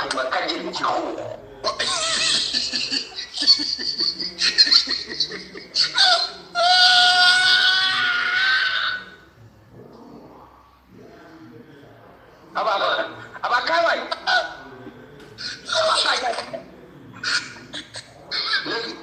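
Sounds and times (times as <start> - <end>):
men laughing high-pitched: 1.7 - 6.5.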